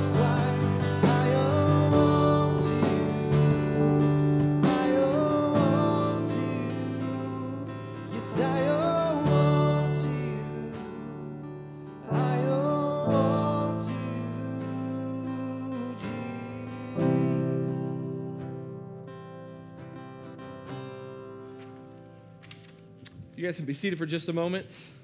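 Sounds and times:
voices singing: 0.0 - 11.2
acoustic guitar and keyboard: 0.0 - 23.4.

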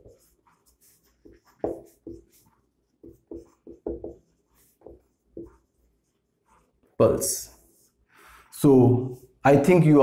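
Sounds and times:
marker squeaking on whiteboard: 0.0 - 7.9.

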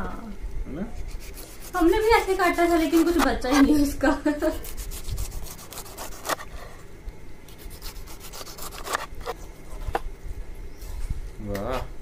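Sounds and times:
knife cutting pineapple rind: 1.0 - 3.7, 4.5 - 6.7, 7.5 - 9.4.

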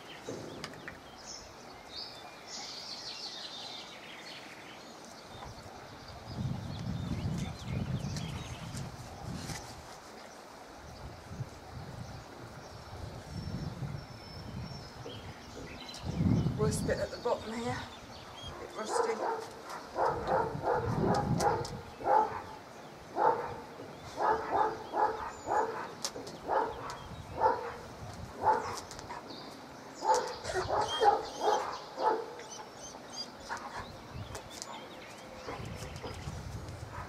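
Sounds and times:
dog barking and yelping: 18.5 - 22.6, 23.2 - 27.8, 28.4 - 29.3, 30.0 - 34.0.

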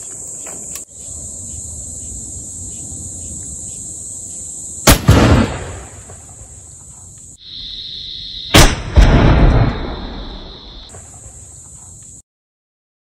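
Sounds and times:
gunshots: 4.8 - 6.3, 8.5 - 11.1.

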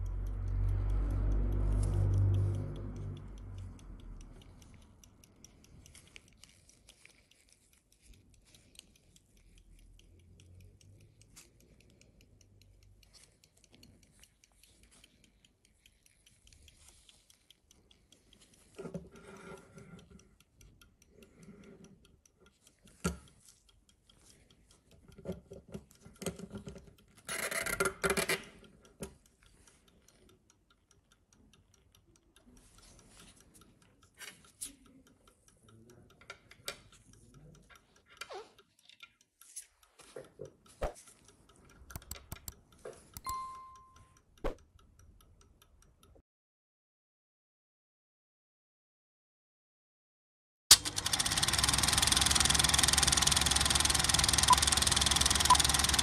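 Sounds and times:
pocket watch ticking: 0.0 - 46.2, 50.7 - 56.0.

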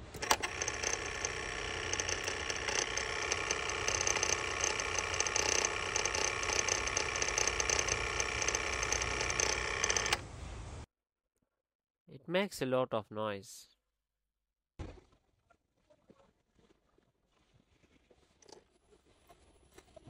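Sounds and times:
throttle motor rattle and whir: 0.0 - 10.2.

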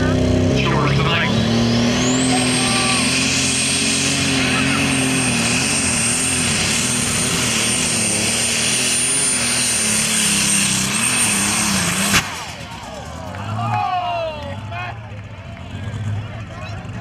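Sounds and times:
diesel tractor engine under load: 0.0 - 17.0.

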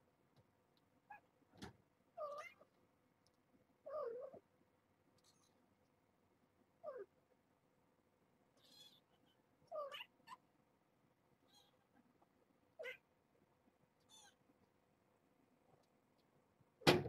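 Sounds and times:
cat chirp: 2.2 - 2.6, 3.9 - 4.4, 12.8 - 13.0, 14.0 - 14.4
cat meowing: 2.2 - 2.7, 3.9 - 4.4, 9.7 - 10.4, 12.8 - 13.0.

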